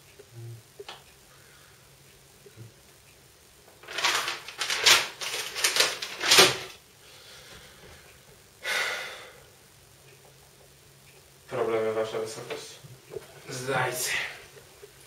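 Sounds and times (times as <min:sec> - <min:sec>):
paper rustling and crinkling: 0:03.8 - 0:06.8.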